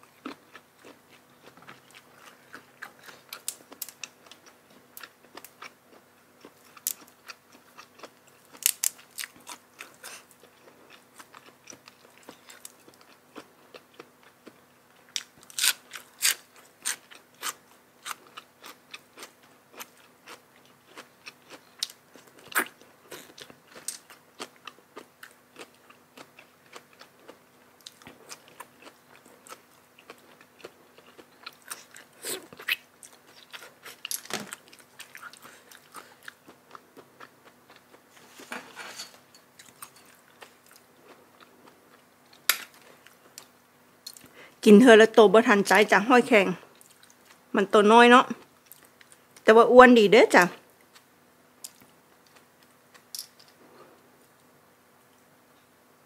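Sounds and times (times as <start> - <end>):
person chewing and crunching: 0.0 - 44.4, 46.7 - 47.5, 50.8 - 54.5.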